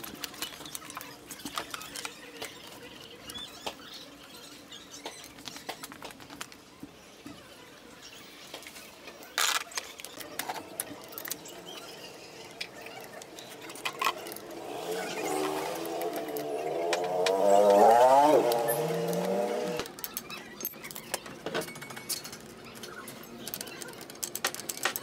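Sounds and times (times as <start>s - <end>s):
tools clicking and tapping: 15.4s - 25.0s
metal parts clattering: 18.8s - 25.0s.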